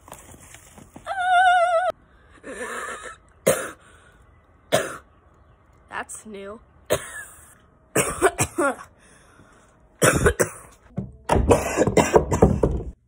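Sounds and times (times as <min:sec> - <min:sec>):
girl coughing and gasping: 0:03.4 - 0:03.8, 0:04.7 - 0:05.0, 0:06.9 - 0:08.9, 0:10.0 - 0:10.8, 0:11.4 - 0:12.6.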